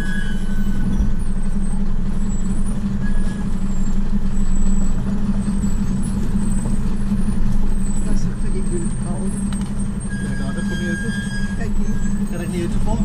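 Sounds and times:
vehicle engine droning: 0.0s - 13.0s.

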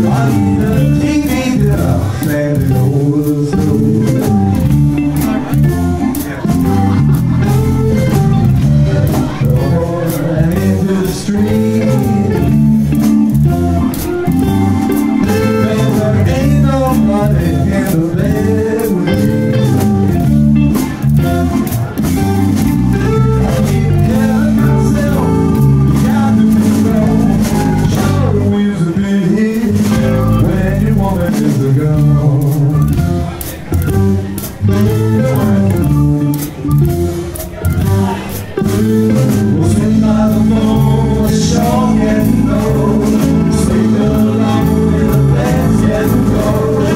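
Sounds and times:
blues band playing: 0.0s - 46.9s
tenor saxophone: 13.5s - 16.6s.

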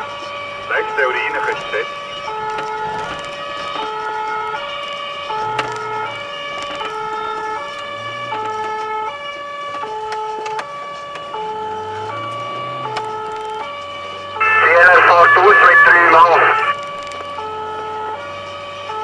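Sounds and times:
two-tone siren: 0.0s - 19.0s.

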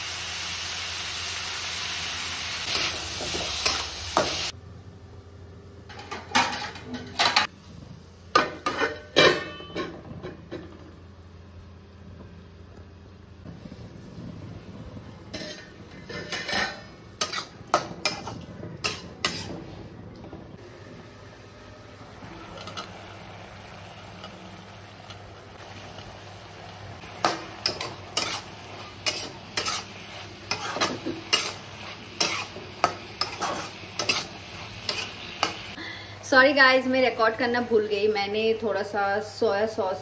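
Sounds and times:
food sizzling: 0.0s - 4.6s, 7.4s - 20.0s, 20.6s - 40.0s
spatula scraping a pan: 8.4s - 9.9s, 15.3s - 19.9s, 27.2s - 35.7s.

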